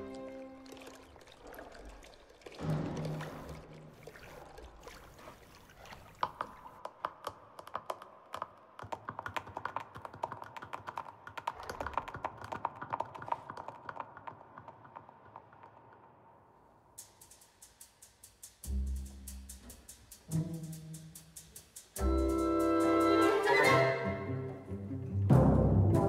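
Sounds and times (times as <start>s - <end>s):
hooves tapping on tiled floor: 6.2s - 16.2s.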